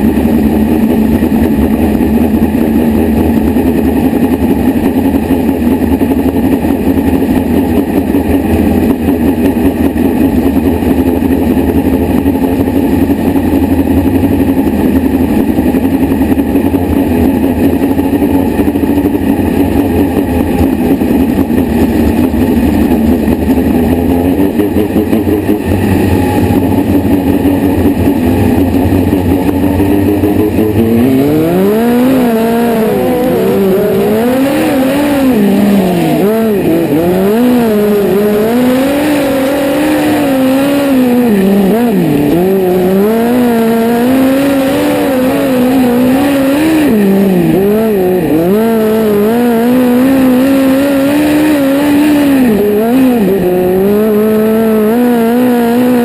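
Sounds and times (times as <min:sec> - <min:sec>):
race car engine running steadily: 0:00.0 - 0:56.0.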